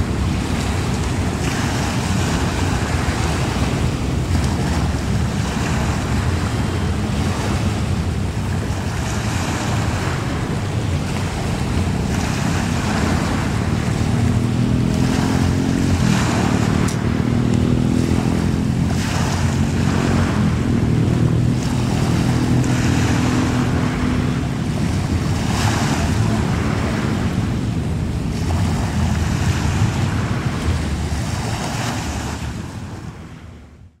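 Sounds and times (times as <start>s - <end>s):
ferry engine drone: 0.0s - 34.0s
waves washing: 0.0s - 34.0s
wind gusting on microphone: 0.0s - 34.0s.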